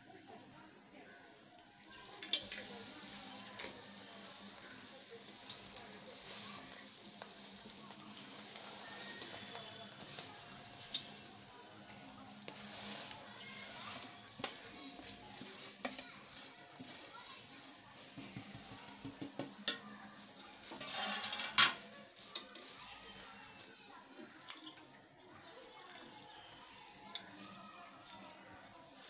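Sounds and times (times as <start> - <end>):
food sizzling in oil: 0.5 - 23.7.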